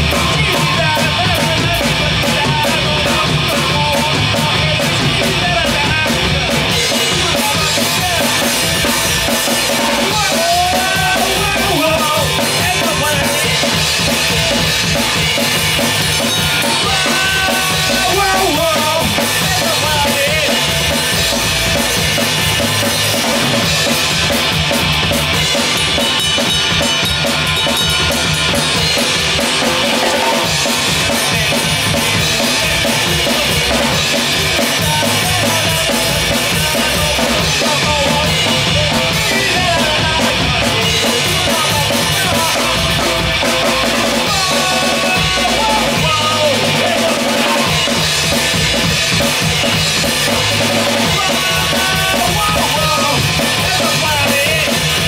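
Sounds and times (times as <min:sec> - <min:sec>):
man singing: 0:00.0 - 0:27.0, 0:27.8 - 0:55.0
drum kit: 0:00.0 - 0:55.0
electric bass: 0:00.0 - 0:55.0
electric guitar: 0:00.0 - 0:55.0.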